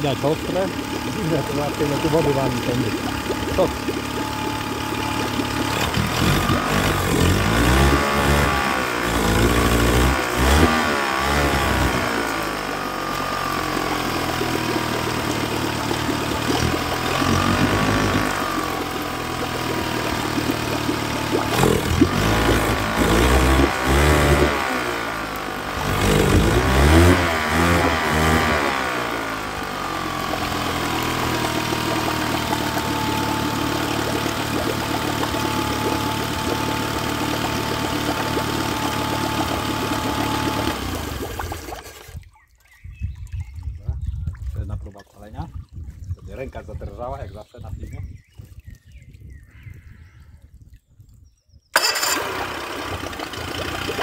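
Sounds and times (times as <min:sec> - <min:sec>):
outboard engine revving: 0:00.0 - 0:42.3, 0:51.8 - 0:54.0.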